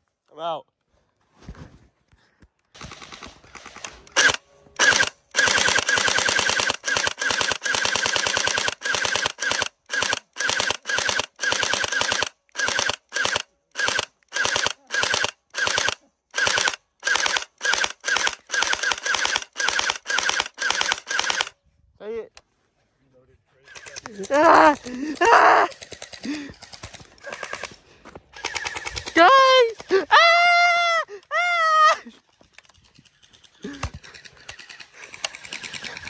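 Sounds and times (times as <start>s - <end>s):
gel blaster firing bursts: 2.8s - 21.6s, 23.7s - 27.8s, 28.4s - 30.0s.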